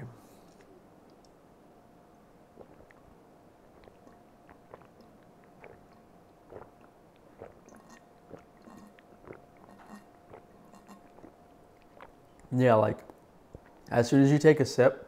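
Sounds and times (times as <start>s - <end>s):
person gulping swallows: 2.5s - 13.9s.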